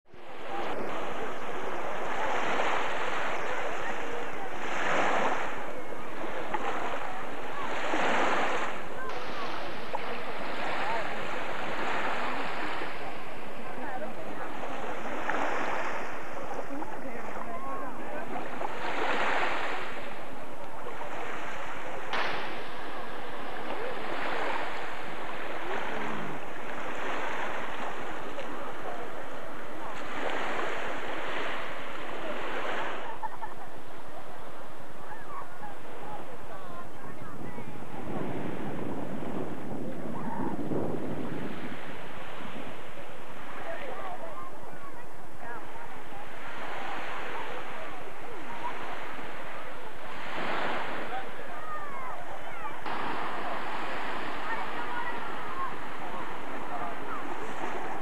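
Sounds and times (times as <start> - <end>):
wind rumbling on microphone: 0.0 - 58.0
small waves breaking on shore: 0.1 - 58.0
wind buffeting microphone: 36.6 - 58.0.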